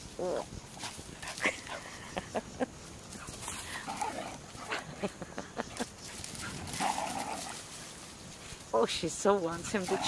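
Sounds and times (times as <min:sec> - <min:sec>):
dog paws running through dry leaves: 0:05.8 - 0:10.0.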